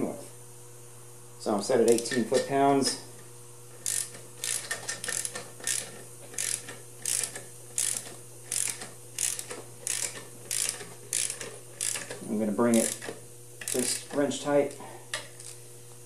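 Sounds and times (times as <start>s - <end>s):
torque wrench ratchet clicking: 1.8s - 2.5s, 3.8s - 14.2s.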